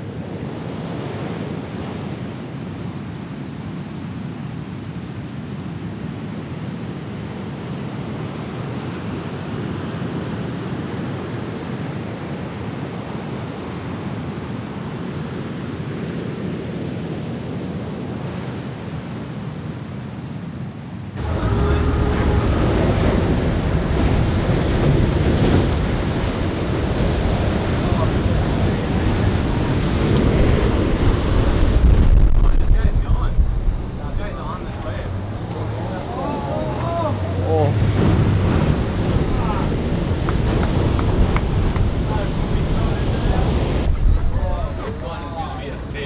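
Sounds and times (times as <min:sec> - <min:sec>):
surf roaring: 0:00.0 - 0:46.0
wind on microphone: 0:20.7 - 0:35.8, 0:37.0 - 0:46.0.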